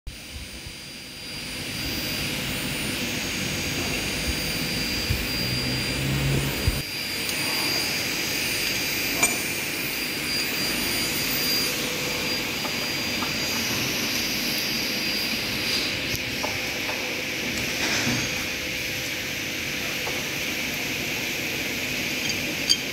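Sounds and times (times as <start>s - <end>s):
workshop machinery whining: 0.1s - 22.9s
sharp metallic clink: 9.1s - 9.6s.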